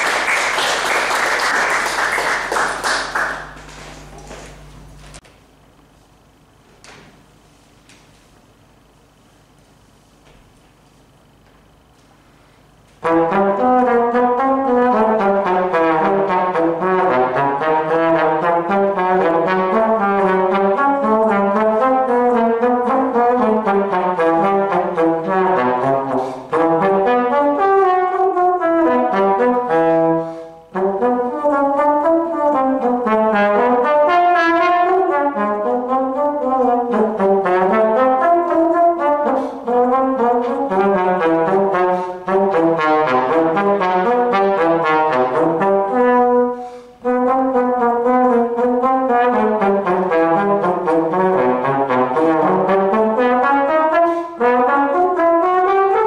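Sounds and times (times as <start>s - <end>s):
solo trombone melody: 13.0s - 56.0s.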